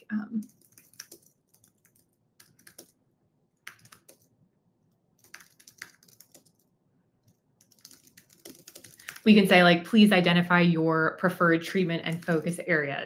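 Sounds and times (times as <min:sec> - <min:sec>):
typing on computer keyboard: 0:00.4 - 0:03.0, 0:03.6 - 0:04.3, 0:05.2 - 0:09.3.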